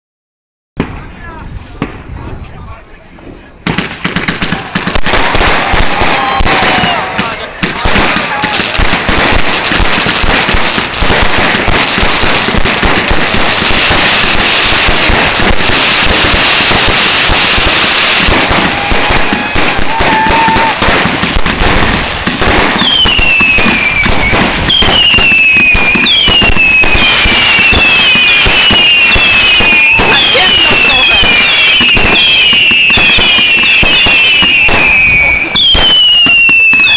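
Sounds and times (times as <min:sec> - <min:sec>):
fireworks launching and banging: 0:00.8 - 0:36.9
fireworks whistling: 0:03.3 - 0:36.9.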